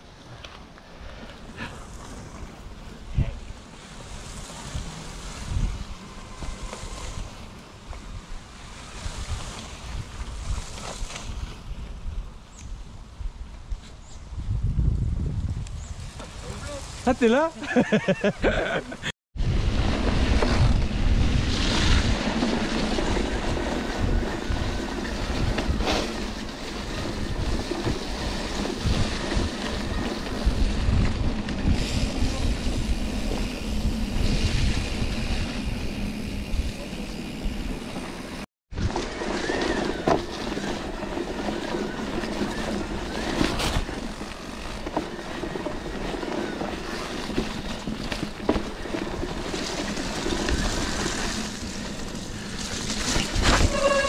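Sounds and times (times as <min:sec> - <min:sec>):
mountain bike rumbling and rattling: 0:00.0 - 0:13.7, 0:19.4 - 0:54.0
wind buffeting microphone: 0:01.8 - 0:17.1, 0:19.4 - 0:54.0.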